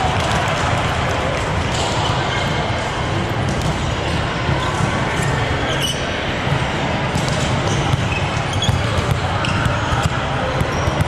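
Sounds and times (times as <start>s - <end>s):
background of many people: 0.0s - 11.0s
volleyballs bouncing on hard court: 3.4s - 4.0s, 6.5s - 11.0s.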